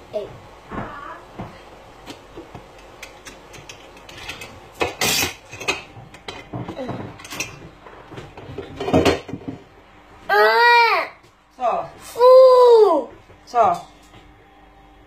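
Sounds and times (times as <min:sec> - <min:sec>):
dishes clattering: 0:03.0 - 0:09.7
dishes clinking in a sink: 0:03.5 - 0:07.7, 0:08.4 - 0:09.6.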